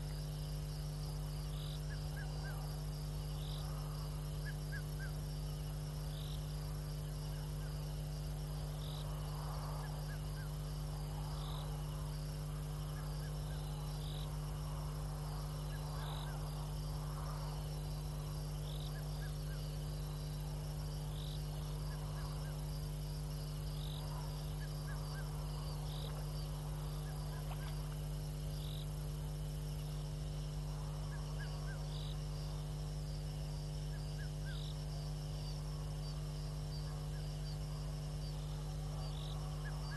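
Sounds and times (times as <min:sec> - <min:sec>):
high chirps of night insects: 0:00.0 - 0:39.9
low electrical hum: 0:00.0 - 0:39.9.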